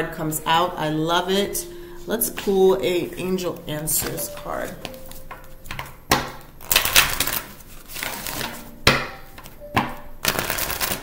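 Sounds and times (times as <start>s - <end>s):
cards swishing while shuffled: 6.7s - 8.7s.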